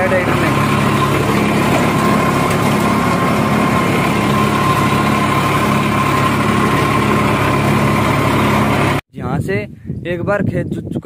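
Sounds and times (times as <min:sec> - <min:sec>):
steady high whine: 0:00.0 - 0:09.0
tractor diesel engine under load: 0:00.0 - 0:09.0.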